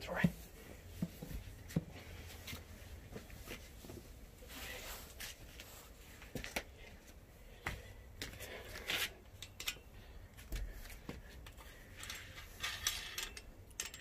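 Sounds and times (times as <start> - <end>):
metal hardware clicks and taps: 9.4 - 9.8.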